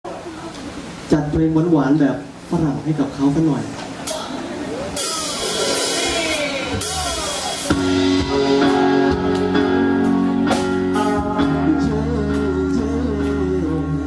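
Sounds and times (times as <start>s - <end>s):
crowd noise: 0.0s - 14.0s
live pop band playing ballad: 4.0s - 14.0s
man singing: 7.2s - 14.0s.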